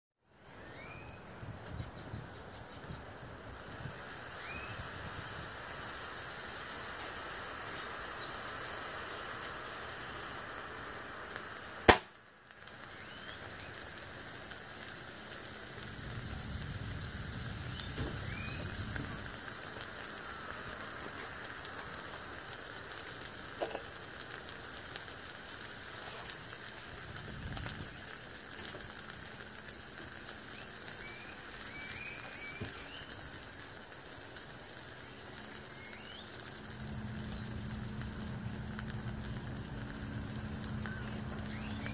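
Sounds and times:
battery hissing and sizzling: 0:00.3 - 0:41.9
sharp pop: 0:11.8 - 0:12.2.

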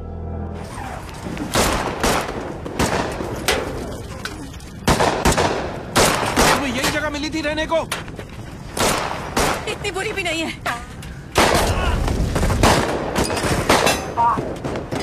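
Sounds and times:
low music: 0:00.0 - 0:00.7.

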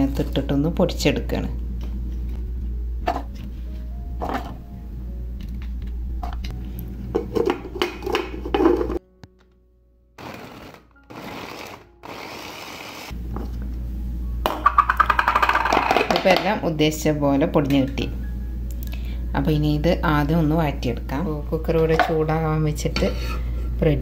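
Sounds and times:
food chopper whirring: 0:10.2 - 0:13.1.

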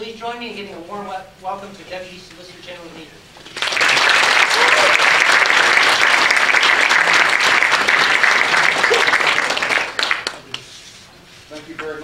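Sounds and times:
audience applauding: 0:03.5 - 0:10.6.

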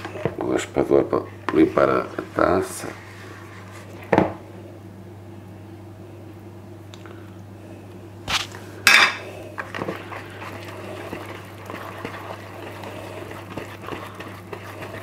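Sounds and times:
dough scraper scraping a bowl: 0:09.6 - 0:15.0.

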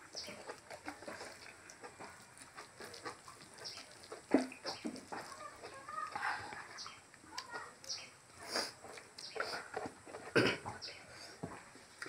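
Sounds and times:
wet chewing and lip smacks: 0:00.0 - 0:10.3.

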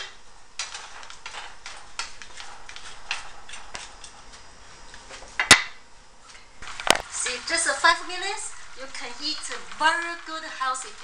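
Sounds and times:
spatula stirring: 0:00.6 - 0:04.5, 0:06.6 - 0:11.0
vegetables crackling in frying pan: 0:06.6 - 0:11.0.

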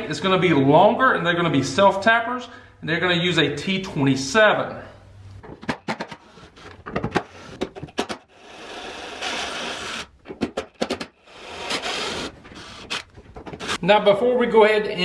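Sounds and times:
tool handling clicks and knocks: 0:05.4 - 0:08.2, 0:12.4 - 0:13.8.

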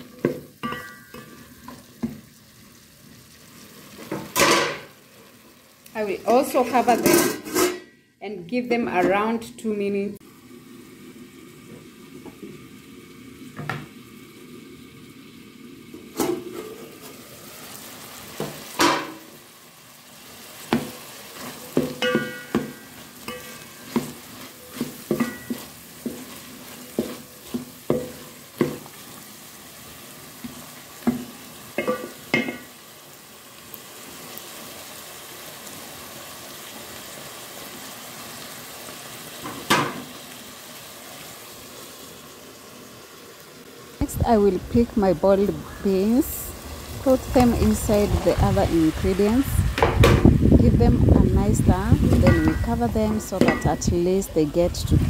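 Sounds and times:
vegetables sizzling in a pot: 0:00.0 - 0:55.0
metal pot lid clanking: 0:00.2 - 0:01.8, 0:04.1 - 0:04.9, 0:06.9 - 0:08.0, 0:18.7 - 0:19.3, 0:21.7 - 0:25.7, 0:31.8 - 0:32.7, 0:52.1 - 0:52.8, 0:53.4 - 0:53.9
wooden spoon scraping a metal pot: 0:06.9 - 0:08.0, 0:21.4 - 0:29.0.

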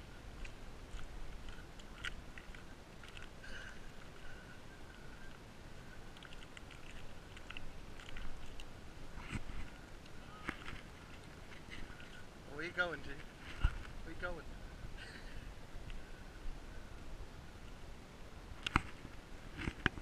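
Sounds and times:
small crackles and clicks: 0:00.4 - 0:05.4, 0:06.1 - 0:12.2.

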